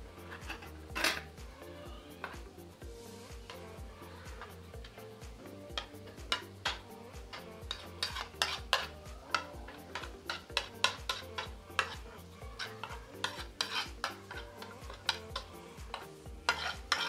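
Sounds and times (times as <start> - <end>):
background music with beat: 0.0 - 17.0
utensil scraping in a pan: 0.2 - 1.4, 5.6 - 17.0
light sizzle: 3.0 - 17.0.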